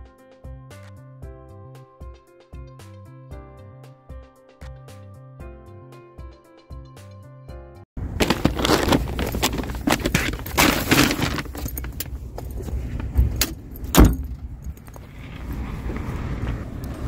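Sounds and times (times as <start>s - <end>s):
cart bang: 8.0s - 11.8s
shopping cart rattling on asphalt: 8.0s - 13.0s.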